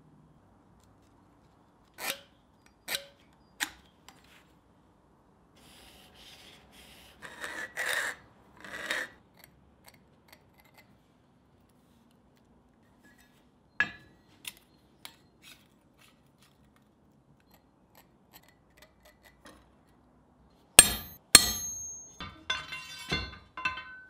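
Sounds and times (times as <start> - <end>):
scribe scratching steel: 20.8 - 22.2.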